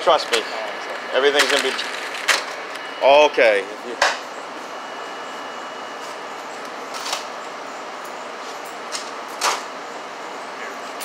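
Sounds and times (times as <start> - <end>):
ventilation and cooler hiss: 0.0 - 11.0.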